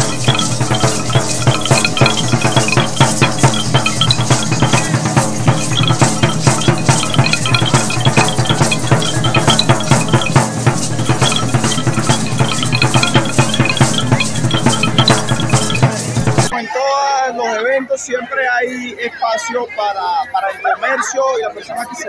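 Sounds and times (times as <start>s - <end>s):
fast even drumbeat: 0.0s - 16.5s
lively percussion music: 0.0s - 16.6s.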